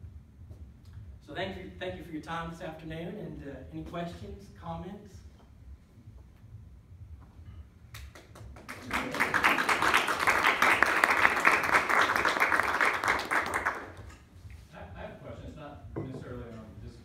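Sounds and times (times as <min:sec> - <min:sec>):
audience applauding: 0:08.1 - 0:14.1.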